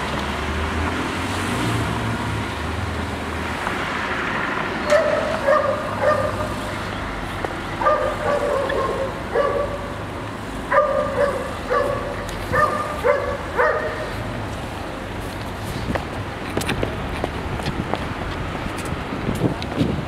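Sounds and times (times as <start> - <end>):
dog barking: 4.9 - 6.6, 7.8 - 9.9, 10.7 - 14.1.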